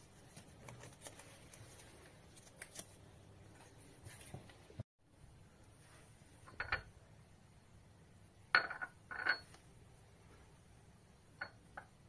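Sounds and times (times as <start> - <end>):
glass clinking on tile floor: 8.5 - 9.6, 11.4 - 11.9.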